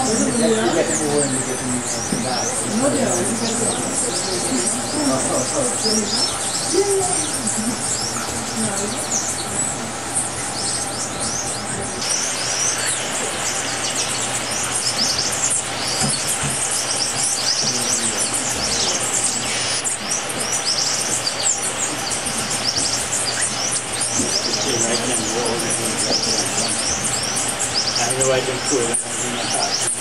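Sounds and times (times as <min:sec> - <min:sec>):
birds chirping: 0:00.0 - 0:30.0
steady hiss: 0:11.9 - 0:30.0.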